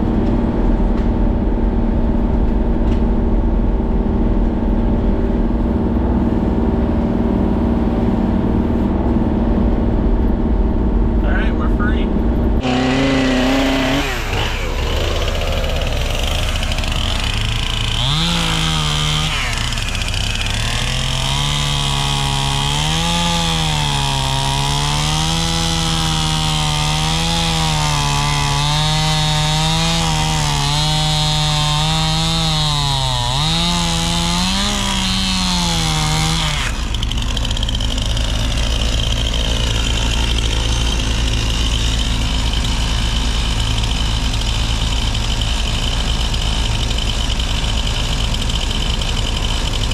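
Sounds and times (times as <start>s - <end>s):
diesel engine idling: 0.0s - 22.0s, 36.7s - 49.9s
chainsaw cutting log: 12.6s - 49.9s.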